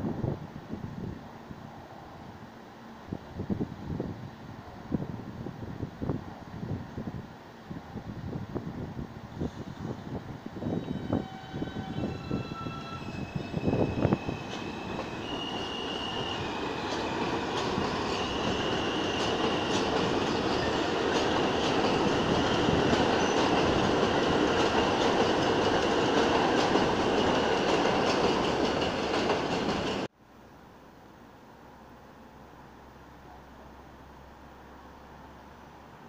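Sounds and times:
train rumble with high whine: 0.0 - 30.1
train wheels clicking over rail joints: 13.8 - 30.1.

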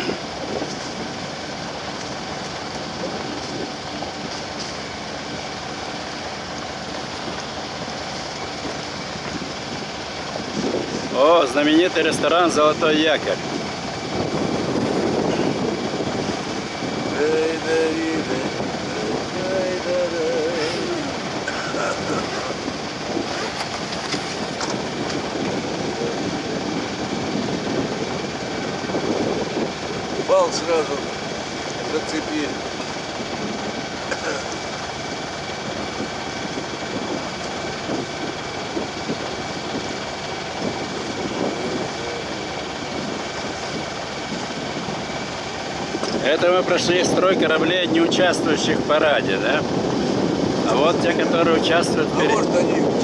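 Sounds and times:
boat motor droning: 0.0 - 53.0
water washing along hull: 0.0 - 53.0
wind noise on microphone: 0.0 - 53.0.

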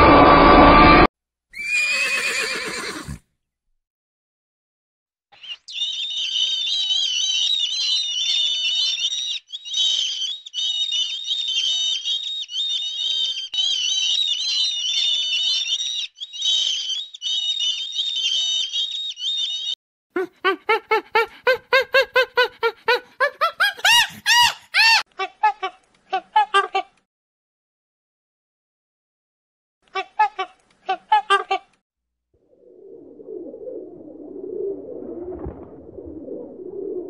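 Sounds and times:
harsh repeated bird calls: 5.4 - 19.8, 20.7 - 25.0
seabirds calling shrilly: 5.4 - 25.0.

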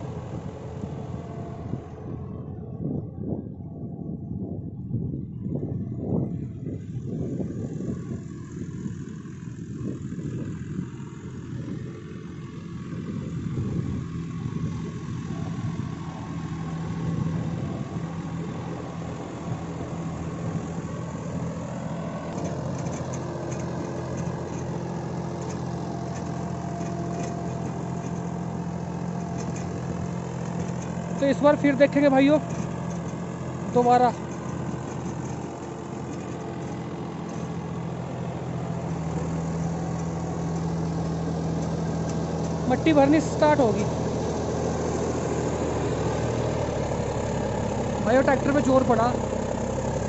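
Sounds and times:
tractor diesel engine running: 0.0 - 50.0.

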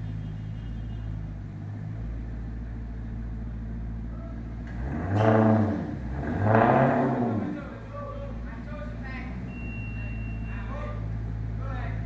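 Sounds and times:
car engine idling: 0.0 - 12.0
engine revving: 4.5 - 10.2.

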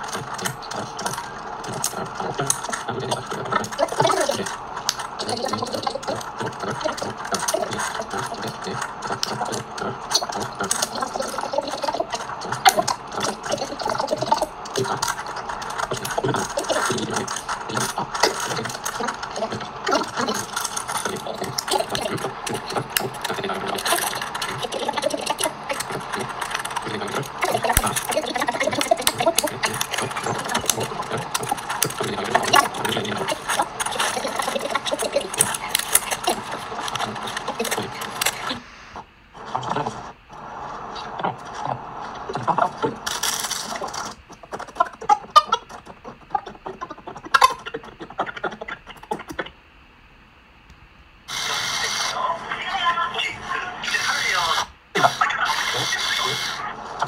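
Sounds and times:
plastic pieces clicking and rattling: 12.0 - 38.4, 43.0 - 44.8.

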